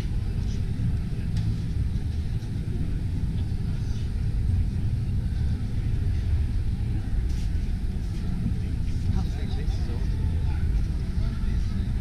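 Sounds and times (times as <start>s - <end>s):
distant crowd chatter: 0.0s - 12.0s
low hall rumble: 0.0s - 12.0s.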